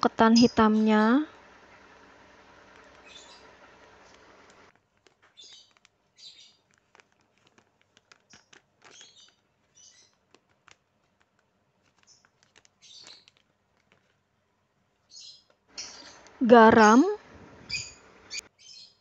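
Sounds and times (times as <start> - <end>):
small bird chirping: 0.1 - 1.2, 2.8 - 4.6, 5.2 - 7.2, 8.0 - 10.4, 11.8 - 13.5, 15.0 - 16.9, 17.7 - 19.0.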